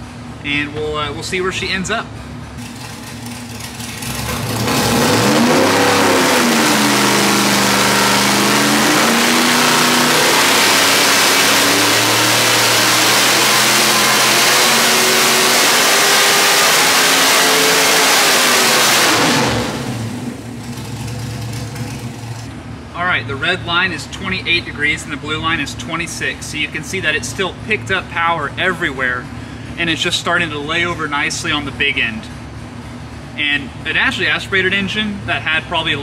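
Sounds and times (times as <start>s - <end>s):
engine revving at full throttle: 3.9s - 21.9s.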